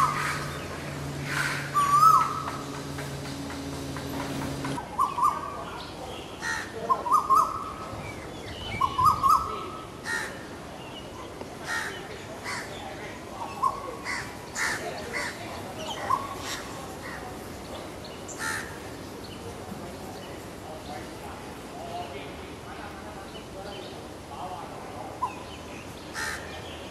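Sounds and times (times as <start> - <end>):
koel singing rising call: 0.0 - 5.2.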